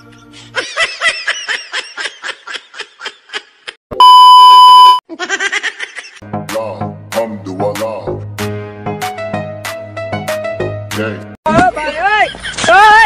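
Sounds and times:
test-tone beep: 0:04.0 - 0:05.0.

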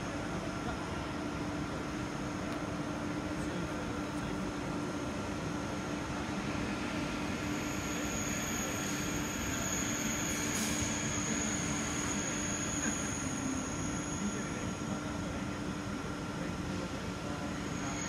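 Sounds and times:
train wheels squealing on rails: 0:06.5 - 0:15.4, 0:16.8 - 0:18.0.

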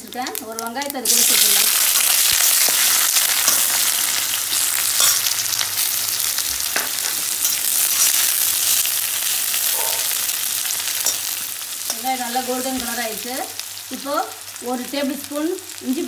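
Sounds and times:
onion sizzling in oil: 0:00.0 - 0:16.0.

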